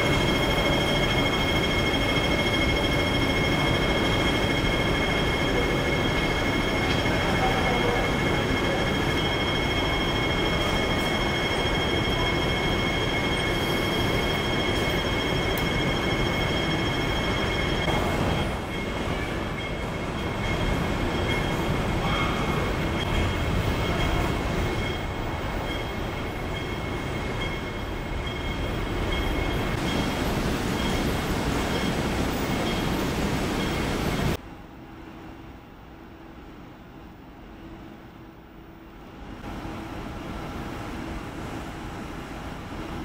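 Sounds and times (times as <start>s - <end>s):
high-pitched whines: 0.0s - 34.4s
train carriage rumble: 0.0s - 34.7s.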